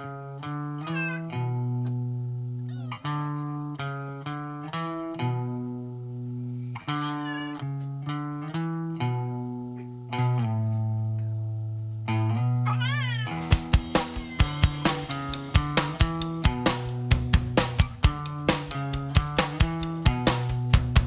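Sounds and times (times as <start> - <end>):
plucked guitar notes: 0.0 - 21.0
low bass notes: 8.0 - 21.0.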